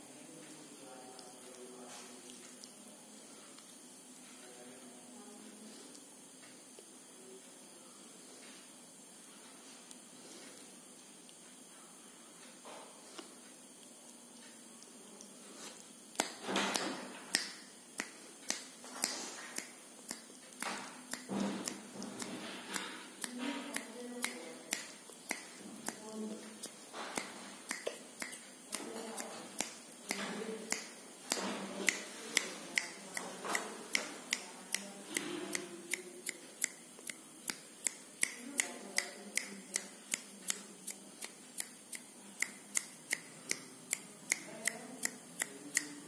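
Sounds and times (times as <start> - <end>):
faint indistinct voices: 0.0 - 10.7, 20.6 - 46.0
sharp dry clicks: 16.1 - 46.0.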